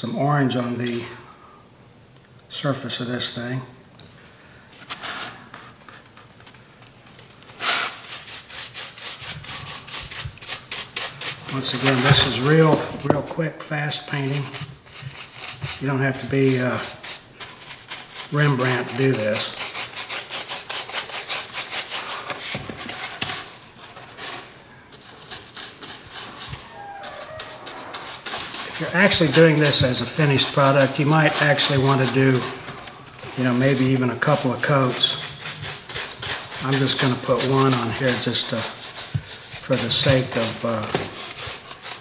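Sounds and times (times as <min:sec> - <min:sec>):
paintbrush scratching on foam: 0:07.6 - 0:13.2, 0:14.0 - 0:42.0.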